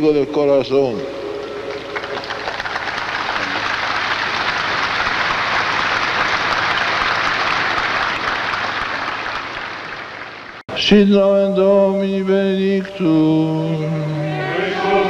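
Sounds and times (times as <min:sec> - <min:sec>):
crowd applauding: 0:01.2 - 0:10.6.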